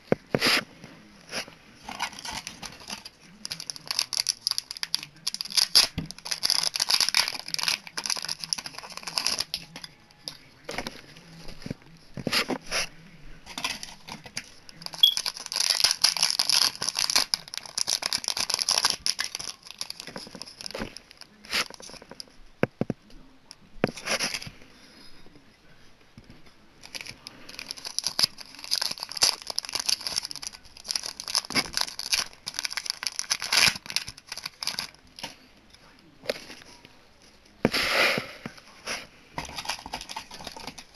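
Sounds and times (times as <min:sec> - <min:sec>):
plastic wrapper crinkling and tearing: 0:01.8 - 0:11.4, 0:13.5 - 0:22.3, 0:26.8 - 0:35.4, 0:39.4 - 0:40.9.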